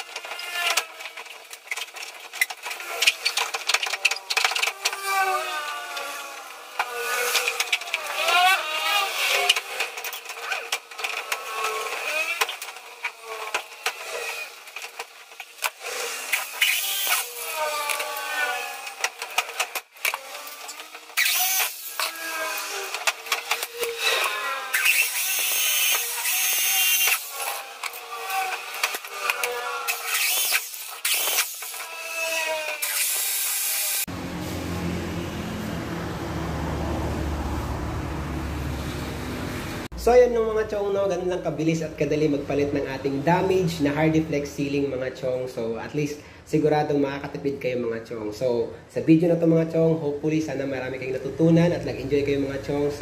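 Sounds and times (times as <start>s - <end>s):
cordless drill driving screws: 2.3s - 34.0s.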